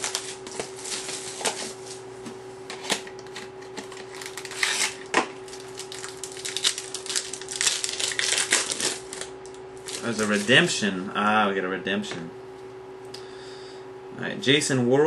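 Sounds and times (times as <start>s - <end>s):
card wrapper crinkling: 3.8s - 10.7s.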